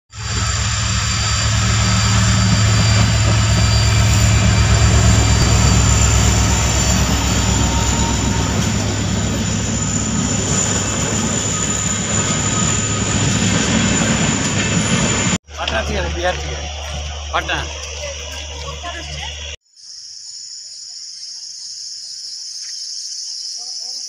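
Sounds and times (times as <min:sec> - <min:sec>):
diesel locomotive engine drone: 0:00.1 - 0:19.6
train coaches running on rails: 0:00.1 - 0:19.6.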